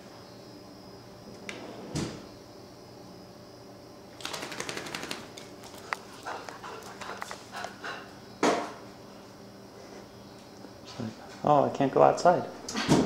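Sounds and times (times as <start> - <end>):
dog claws scrabbling on tile: 4.2 - 7.8.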